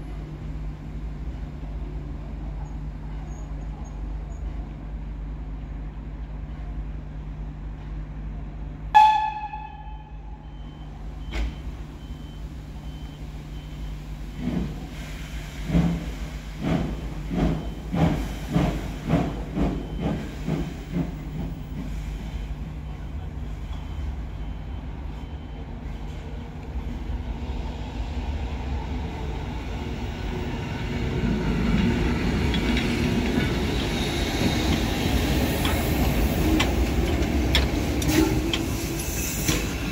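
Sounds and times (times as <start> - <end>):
steam locomotive whistle toot: 9.0 - 10.9
locomotive rumble: 10.0 - 39.9.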